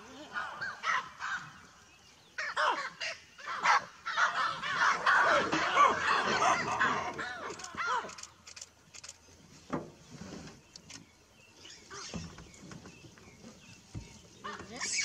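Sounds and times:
baboons barking: 2.4s - 8.2s, 14.4s - 15.0s.

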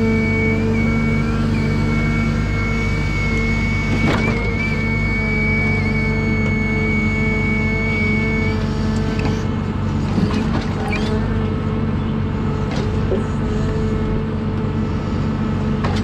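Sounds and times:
high steady whine: 0.0s - 9.5s
diesel engine running: 0.0s - 16.0s.

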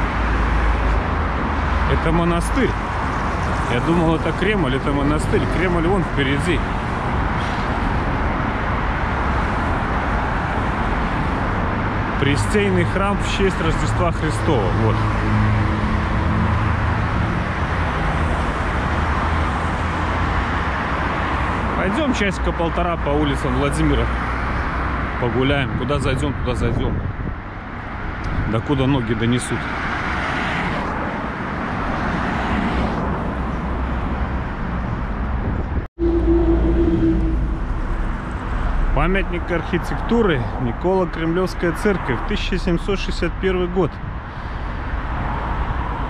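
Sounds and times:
passing cars rumble: 0.0s - 46.0s
steady road noise: 0.0s - 46.0s
vehicle engine hum: 30.7s - 42.2s.

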